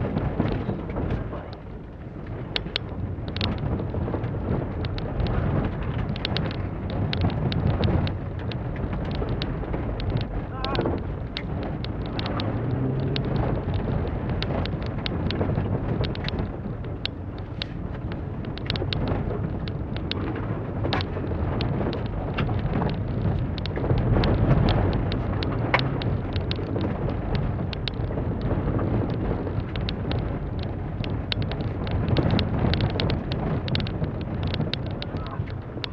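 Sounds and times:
tyre noise: 3.5s - 35.9s
car engine revving: 12.1s - 13.8s.

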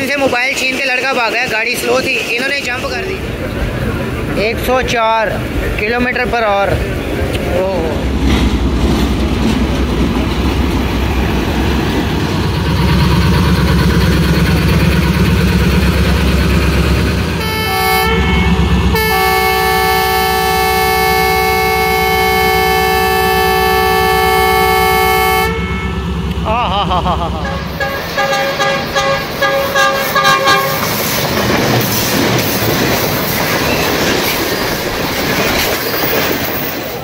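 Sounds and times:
diesel locomotive engine rumble: 0.0s - 37.0s
locomotive air horn blasts: 17.4s - 26.1s, 27.4s - 30.9s.

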